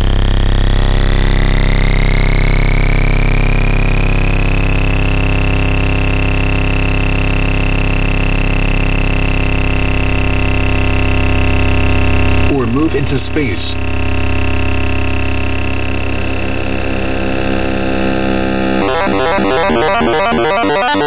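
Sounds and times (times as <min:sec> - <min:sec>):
synthesized buzzing drone: 0:00.0 - 0:21.0
high tone gliding upward: 0:15.9 - 0:21.0.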